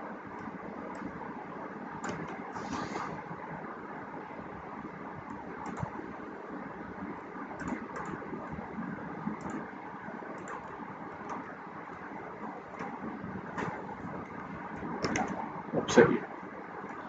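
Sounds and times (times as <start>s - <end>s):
steady background hiss: 0.0s - 17.0s
computer keyboard clicks: 5.3s - 6.0s, 7.6s - 8.2s, 10.4s - 11.5s
computer mouse clicks: 5.3s - 6.0s, 7.6s - 8.2s, 9.4s - 9.7s, 10.3s - 11.5s.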